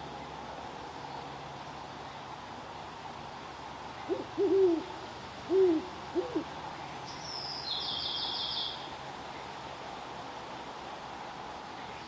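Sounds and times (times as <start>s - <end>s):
owl hooting: 4.0s - 4.9s, 5.5s - 6.5s.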